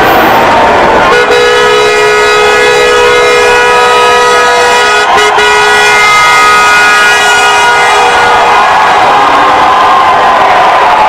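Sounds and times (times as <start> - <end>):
crowd noise: 0.0 - 11.0
car horn blaring: 1.0 - 8.6.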